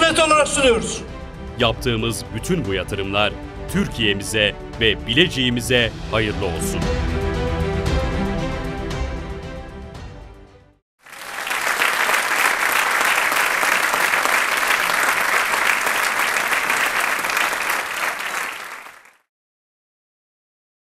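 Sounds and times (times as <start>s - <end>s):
background music: 0.0s - 10.8s
crowd applauding: 11.0s - 19.2s.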